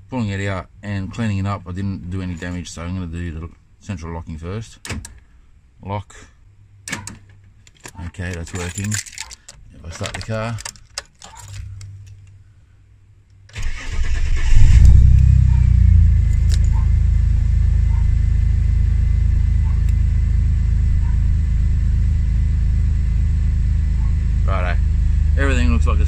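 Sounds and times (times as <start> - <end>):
car engine starting and idling: 13.5 - 26.0.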